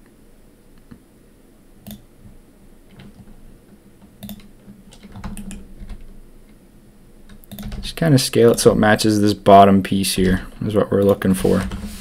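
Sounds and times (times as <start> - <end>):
faint low hum: 0.0 - 12.0
keyboard key presses: 4.0 - 6.1, 7.3 - 8.7.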